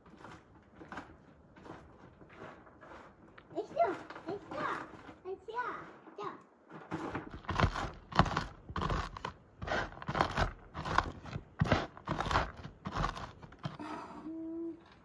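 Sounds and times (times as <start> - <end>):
rolling pin crushing walnuts: 6.7 - 13.8.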